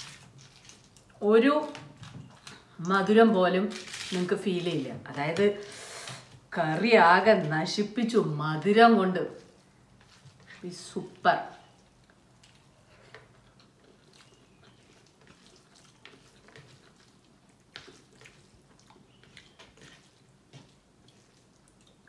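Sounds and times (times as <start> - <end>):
person chewing: 11.6 - 22.0
person eating by hand: 11.6 - 22.0.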